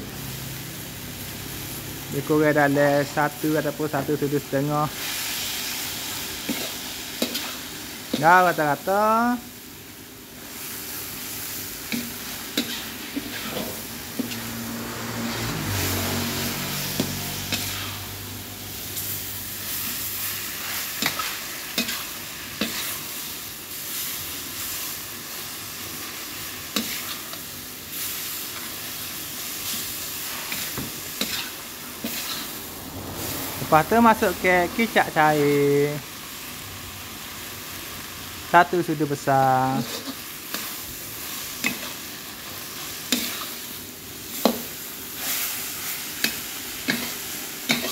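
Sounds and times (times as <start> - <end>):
food sizzling in a wok: 0.0 - 47.9
metal spatula scraping a pan: 4.9 - 7.8, 10.5 - 18.2, 19.0 - 23.2, 26.7 - 33.5, 39.7 - 47.9.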